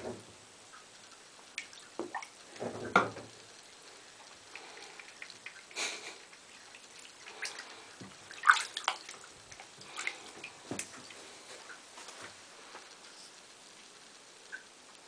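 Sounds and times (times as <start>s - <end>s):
water drips: 0.6s - 13.1s, 14.4s - 15.0s
hand splashing bathwater: 4.5s - 11.8s.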